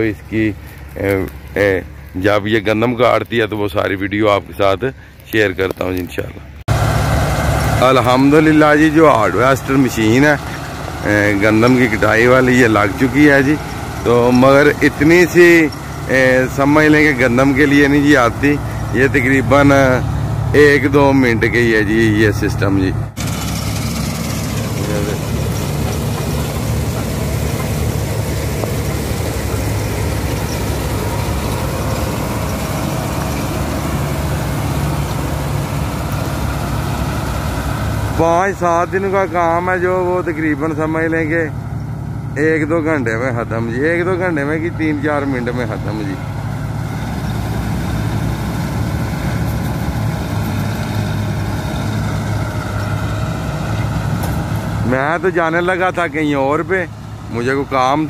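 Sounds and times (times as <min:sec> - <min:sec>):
combine harvester engine running: 0:00.0 - 0:58.0
machine cutting wheat rush: 0:06.9 - 0:20.0, 0:23.2 - 0:39.5.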